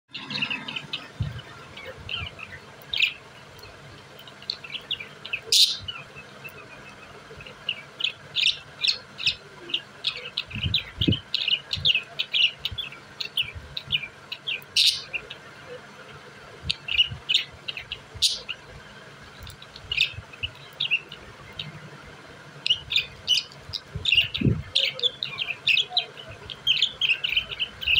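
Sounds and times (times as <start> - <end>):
sharp loud bird calls: 0.1 - 15.7
budgerigars chirping: 0.1 - 21.8, 22.6 - 27.9.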